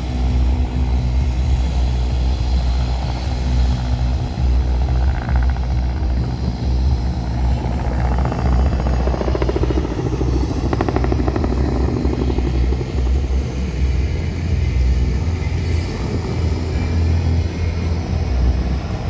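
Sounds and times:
helicopter flying past: 0:00.0 - 0:19.0
rotor blades beating: 0:00.0 - 0:19.0.

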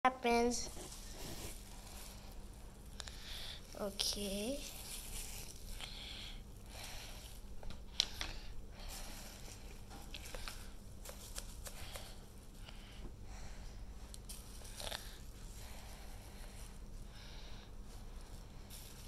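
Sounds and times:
bubble wrap crinkling: 0:00.6 - 0:08.1, 0:08.9 - 0:12.6, 0:14.1 - 0:17.1, 0:18.1 - 0:19.0.

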